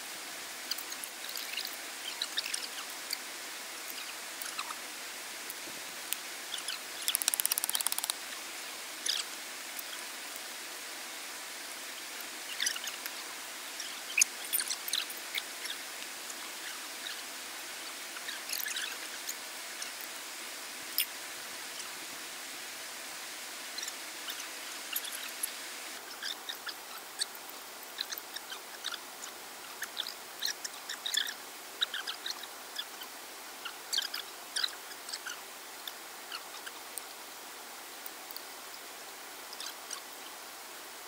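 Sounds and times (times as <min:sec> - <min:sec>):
running water hissing: 0:00.0 - 0:37.3
high chirps and ticks: 0:07.0 - 0:08.2.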